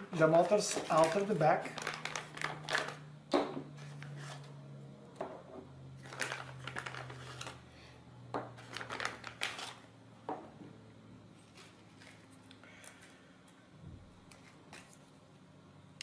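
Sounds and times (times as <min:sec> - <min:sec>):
plastic bag rustling: 0:00.1 - 0:03.0, 0:06.0 - 0:07.6, 0:08.6 - 0:09.9.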